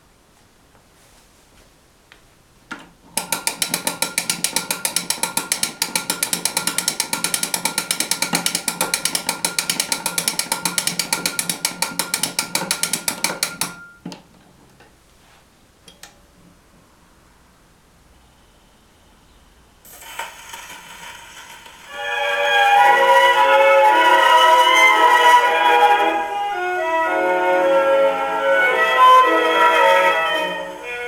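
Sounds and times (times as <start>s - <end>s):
gramophone crank ratchet clicking: 3.1s - 13.8s.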